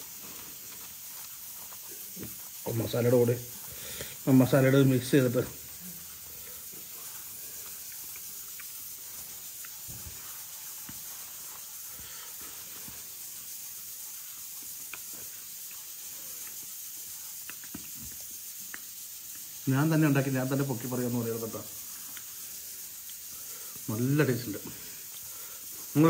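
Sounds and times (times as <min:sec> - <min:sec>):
steady background hiss: 0:00.0 - 0:26.0.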